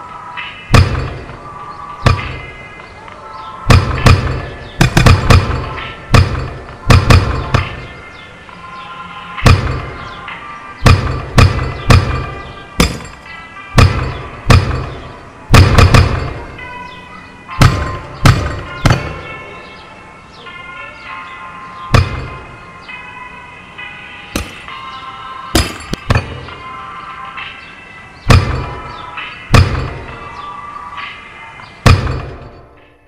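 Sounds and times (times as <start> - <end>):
sustained melodic notes: 0.0 - 32.8
heavy percussive hits: 0.7 - 1.4, 3.7 - 8.0, 10.8 - 13.2, 17.6 - 19.4, 24.4 - 24.8, 25.6 - 26.6.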